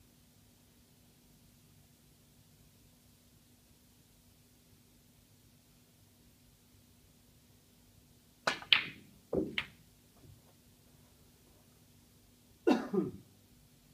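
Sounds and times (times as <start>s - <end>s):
ball dropping into pocket: 8.4s - 10.4s
snooker balls clicking: 8.4s - 10.6s
cue striking ball: 8.5s - 9.8s.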